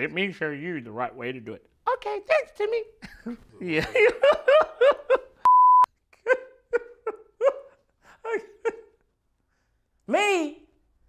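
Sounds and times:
man laughing: 3.0 - 5.4, 6.2 - 9.0
censor beep: 5.4 - 5.9.

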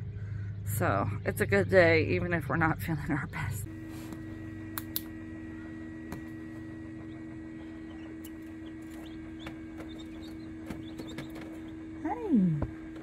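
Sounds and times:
incubator humming: 0.0 - 13.0
chicks peeping: 6.2 - 12.0.

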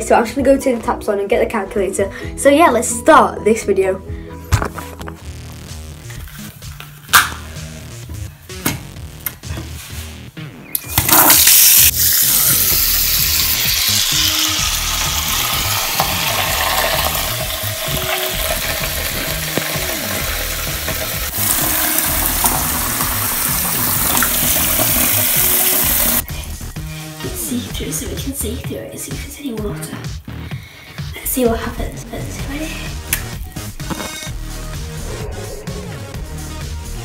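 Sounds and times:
tap water running into sink: 11.0 - 26.2.

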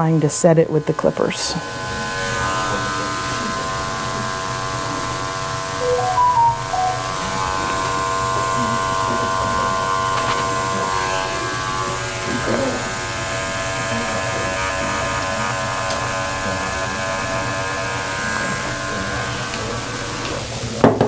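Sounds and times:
electric clipper buzzing: 0.9 - 5.8, 7.2 - 20.6.

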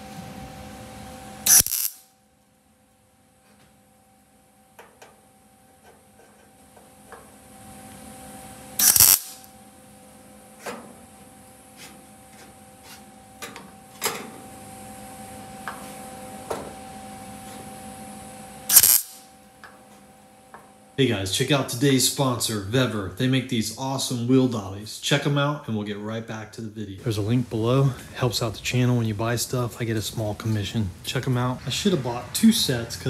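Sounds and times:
steady hum: 0.0 - 33.0
welder crackle: 1.4 - 2.1, 8.8 - 9.6, 18.7 - 19.3.

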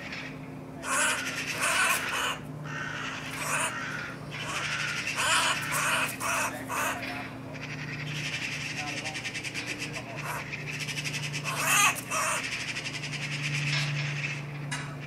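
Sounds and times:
magpie rasping chatter: 0.8 - 14.5.

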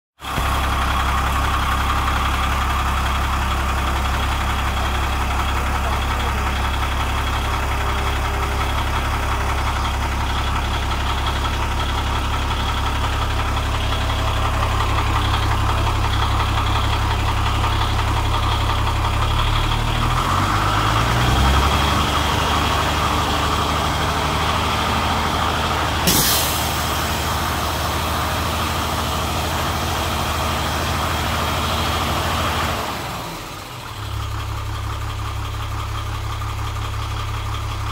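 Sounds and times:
diesel truck engine idling: 0.2 - 37.9
sharp hiss of air: 26.1 - 26.8.

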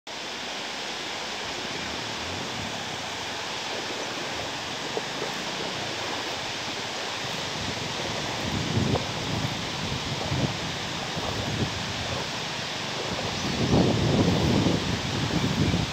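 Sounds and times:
water roaring from a dam: 0.1 - 15.9
soft low thumps: 1.6 - 15.0.

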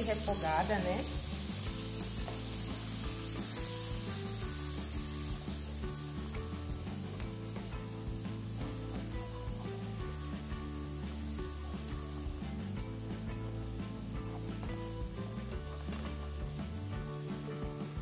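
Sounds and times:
onion sizzling in a frying pan: 0.0 - 18.0
spatula stirring in a pan: 0.2 - 5.8.

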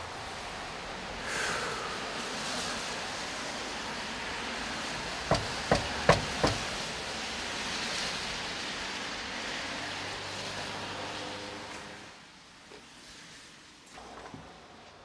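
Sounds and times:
knocking on a door: 5.3 - 6.7.

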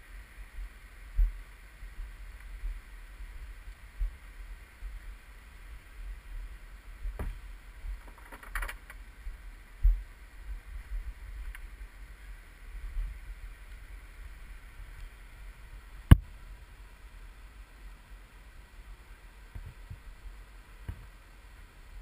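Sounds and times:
low wind rumble: 0.0 - 22.0
camera handling noise: 8.0 - 9.0.

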